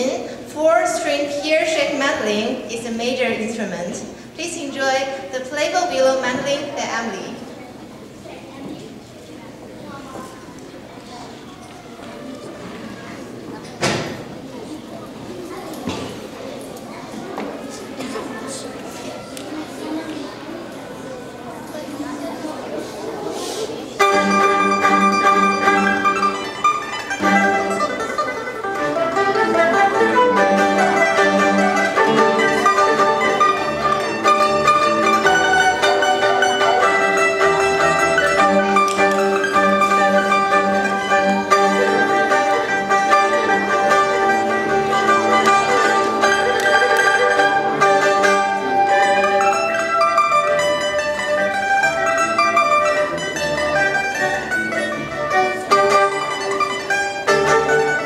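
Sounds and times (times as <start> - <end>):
plucked-string ensemble music: 23.9 - 58.0.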